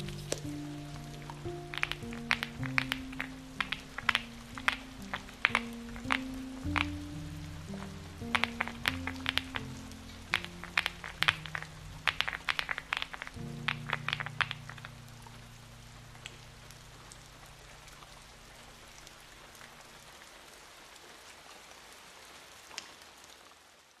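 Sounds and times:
isolated ticks: 0.0 - 18.3
soft low music chord: 0.0 - 20.1
faint steady hiss: 0.0 - 24.0.

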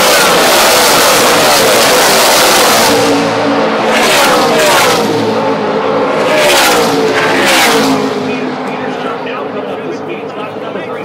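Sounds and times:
race truck engines passing: 0.0 - 11.0.

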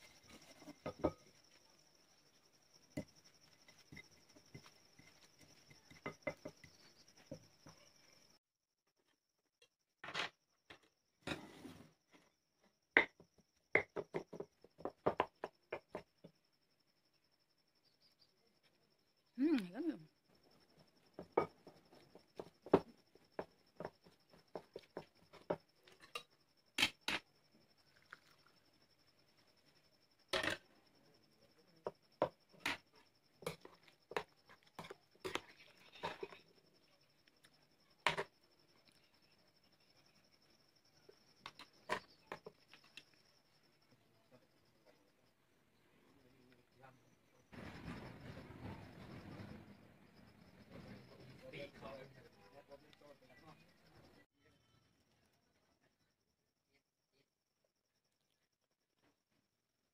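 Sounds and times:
faint steady high tone: 27.4 - 56.8.

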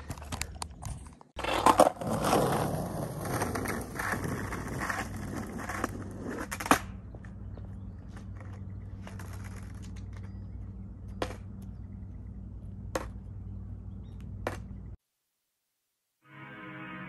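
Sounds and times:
low hum: 5.5 - 15.0.

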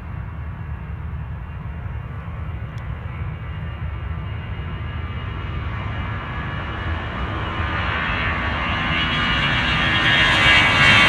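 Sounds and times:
distant jet engines at takeoff: 0.0 - 11.0.

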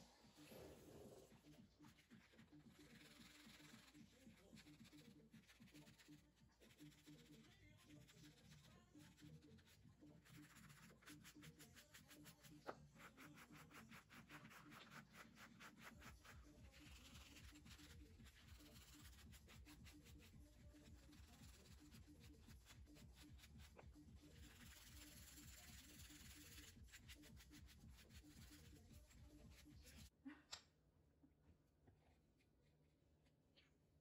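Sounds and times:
hand sanding wood: 24.4 - 28.9.

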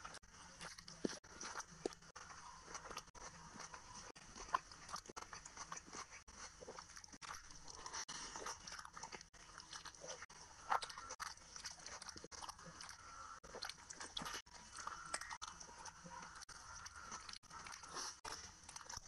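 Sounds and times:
person chewing food: 0.0 - 19.0.

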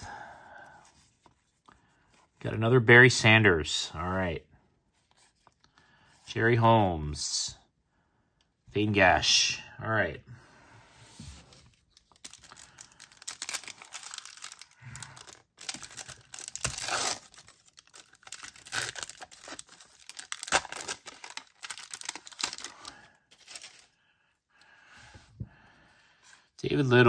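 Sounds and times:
trading cards rustling and flicking: 11.4 - 23.9.

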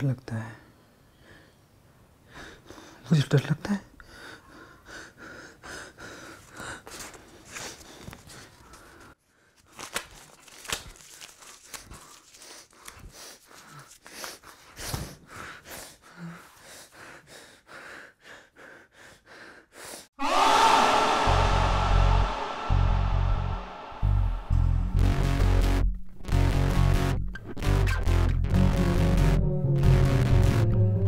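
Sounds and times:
paper crumpling and tearing: 9.6 - 14.4
loud music with deep bass: 21.3 - 27.2.

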